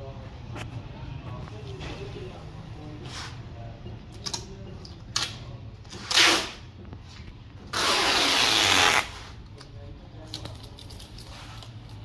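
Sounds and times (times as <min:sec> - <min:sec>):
adhesive tape ripping off roll: 0:06.0 - 0:06.6, 0:07.7 - 0:09.2.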